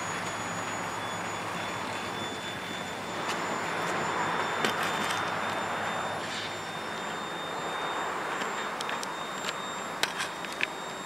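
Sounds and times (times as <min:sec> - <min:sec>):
high-pitched whine: 0:00.0 - 0:11.0
clicks and clanks: 0:08.4 - 0:10.8.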